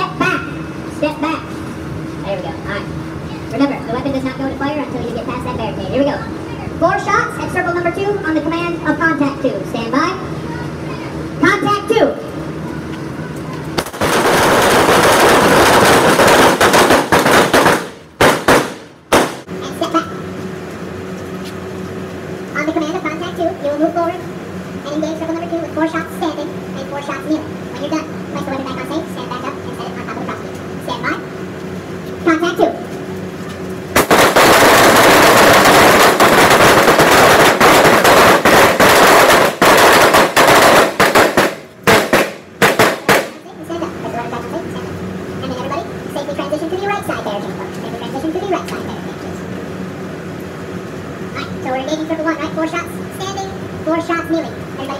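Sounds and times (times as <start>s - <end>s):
rifle gunshots: 13.8s - 19.5s, 34.0s - 43.4s.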